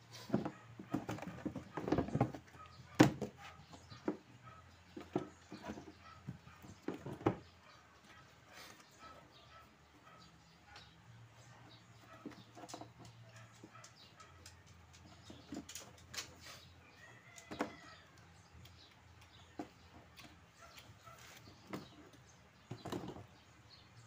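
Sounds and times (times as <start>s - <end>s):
clicks and knocks of hands working: 17.4s - 20.9s.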